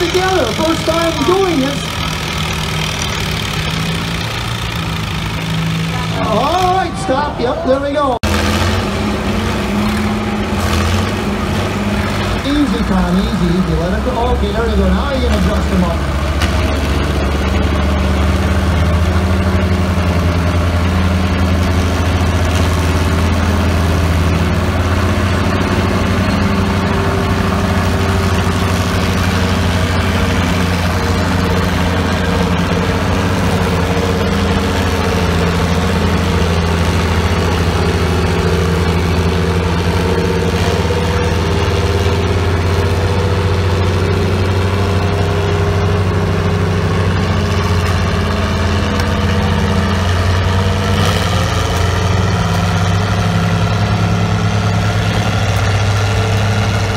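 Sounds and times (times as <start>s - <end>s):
tractor engines running hard: 0.0s - 56.9s.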